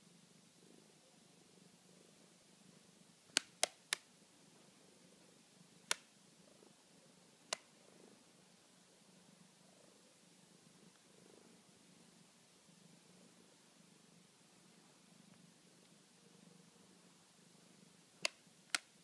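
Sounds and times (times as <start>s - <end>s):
cat purring: 0.0s - 3.4s, 4.2s - 19.0s.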